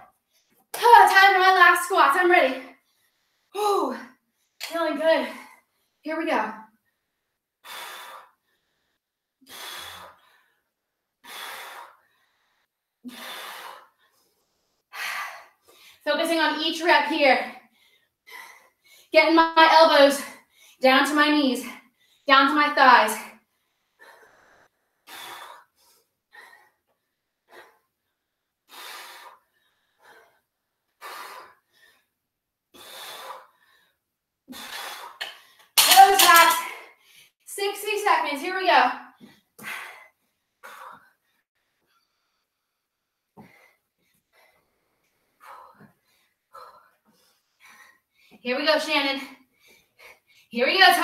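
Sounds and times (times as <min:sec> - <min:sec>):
woman breathing hard: 0:06.8 - 0:16.0, 0:23.4 - 0:35.8.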